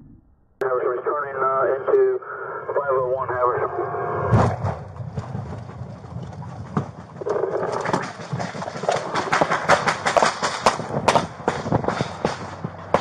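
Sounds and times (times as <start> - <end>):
gear rattling: 5.0 - 11.0.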